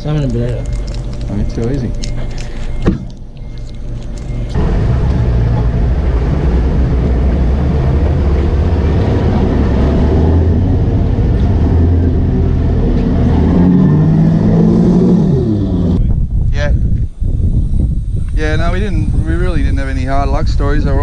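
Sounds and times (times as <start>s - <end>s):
boat engine running: 0.0s - 16.0s
water noise: 0.0s - 16.0s
wind noise: 4.2s - 21.0s.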